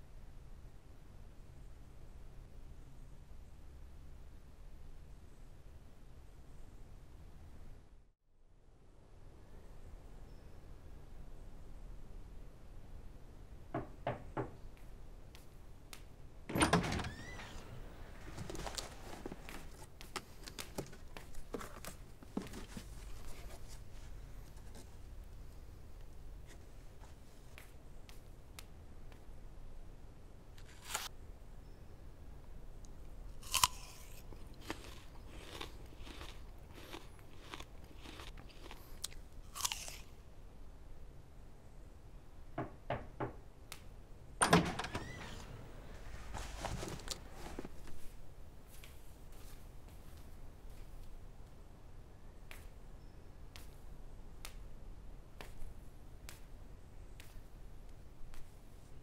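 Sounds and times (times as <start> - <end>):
knocks on wooden door: 13.8 - 14.6, 42.6 - 43.4
door hinge squeak: 16.5 - 17.9, 44.4 - 45.9
door latch clattering: 16.5 - 17.9, 44.4 - 45.9
chewing: 33.4 - 40.2
crunch of biting apple: 33.4 - 40.2.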